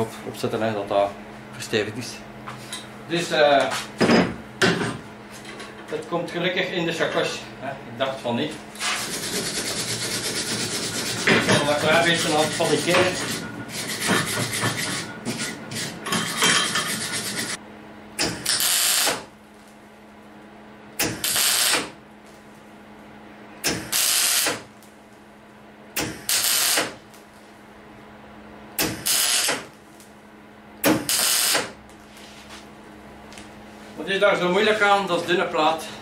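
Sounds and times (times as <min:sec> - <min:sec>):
steady low hum: 0:00.0 - 0:36.0
welding arc crackling: 0:18.4 - 0:19.3, 0:21.0 - 0:22.4, 0:23.7 - 0:24.8, 0:26.2 - 0:27.2, 0:28.8 - 0:30.0, 0:30.8 - 0:31.8.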